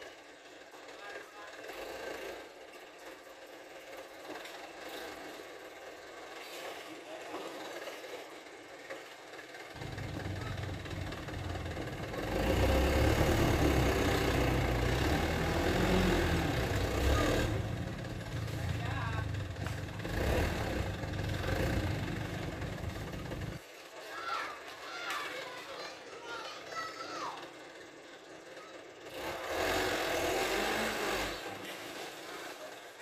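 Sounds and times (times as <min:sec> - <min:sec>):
diesel truck engine running: 0:09.5 - 0:23.6
deeper engine note: 0:09.8 - 0:23.6.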